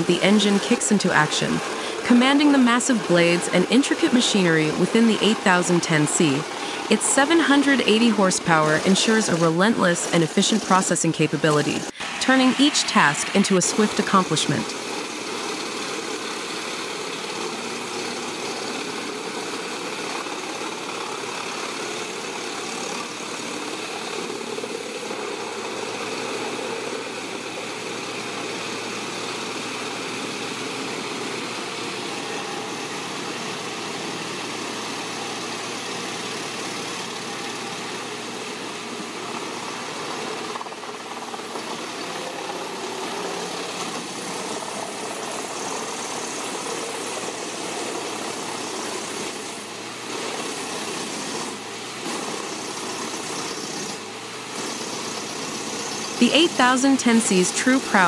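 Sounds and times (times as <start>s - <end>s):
wood chipper chewing logs: 14.7s - 56.2s.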